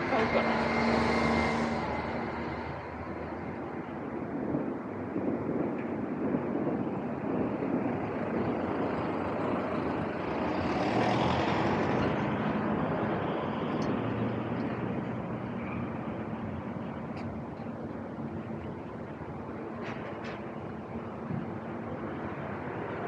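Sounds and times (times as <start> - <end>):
vehicle passing close by: 0.0 - 3.6, 8.5 - 16.8
steady road noise: 0.0 - 23.0.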